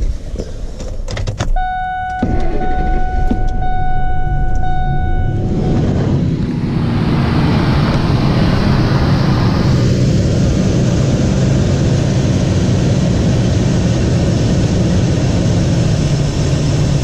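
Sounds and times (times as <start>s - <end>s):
door-open chime: 1.6s - 5.5s.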